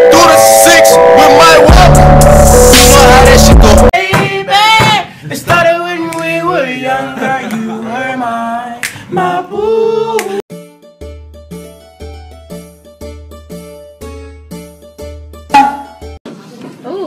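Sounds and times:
person singing unaccompanied: 0.0 - 10.4
plinking keyboard tune: 15.5 - 16.2.

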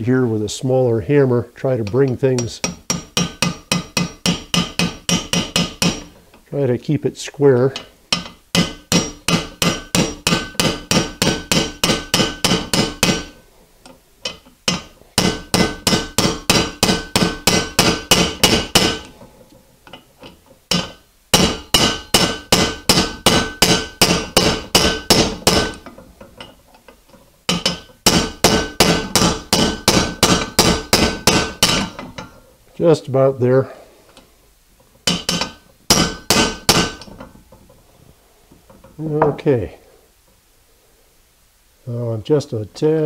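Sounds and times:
hammer tapping on steel: 1.8 - 6.1, 7.7 - 13.4, 14.2 - 19.1, 20.7 - 26.5, 27.5 - 32.3.

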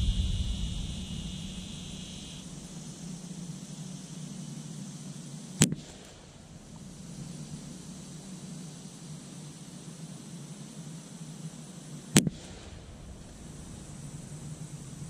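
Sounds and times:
low rumble: 0.0 - 2.8.

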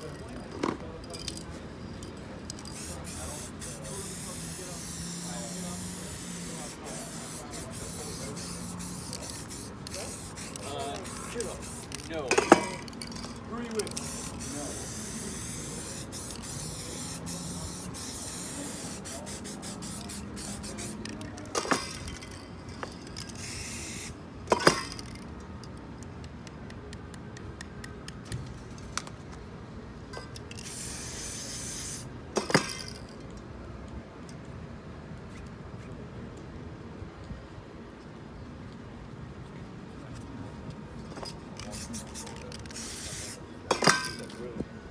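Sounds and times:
spray-paint can hissing: 2.6 - 12.0, 13.8 - 22.4, 23.1 - 25.1, 30.5 - 32.7, 41.6 - 44.1.

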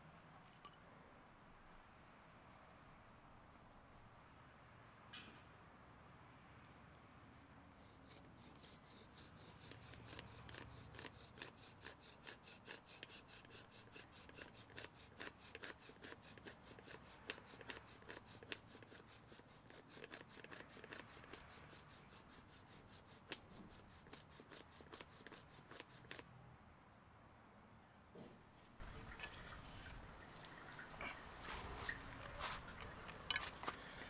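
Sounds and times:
bow drill rubbing and scraping: 7.8 - 26.2.

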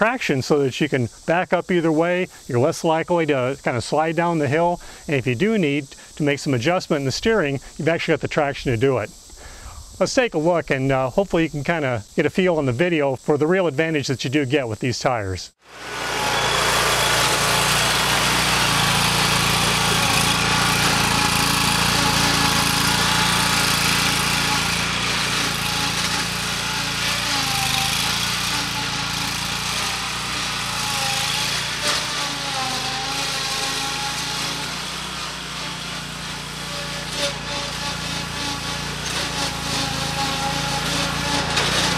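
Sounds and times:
riding mower engine running: 15.6 - 41.9.

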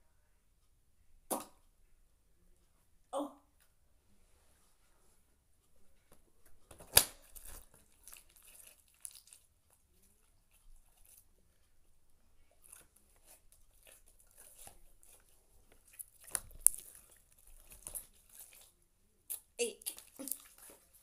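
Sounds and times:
slime crackling and popping: 6.7 - 9.5, 12.6 - 18.7, 19.3 - 21.0.

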